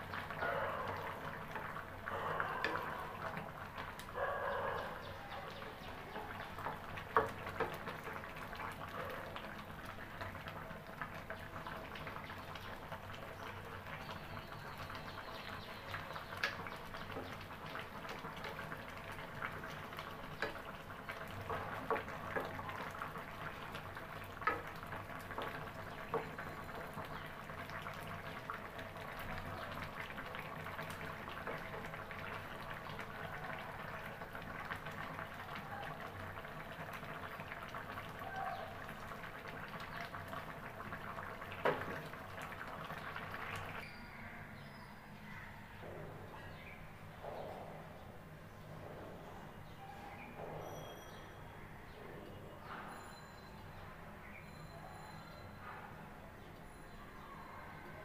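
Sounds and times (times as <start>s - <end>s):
curry simmering in a pan: 0.0s - 4.2s, 4.8s - 44.0s.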